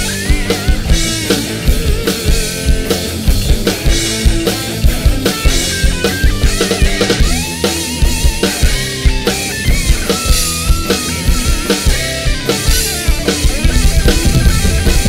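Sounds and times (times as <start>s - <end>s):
drum kit beat: 0.0s - 15.0s
rock song: 0.0s - 15.0s.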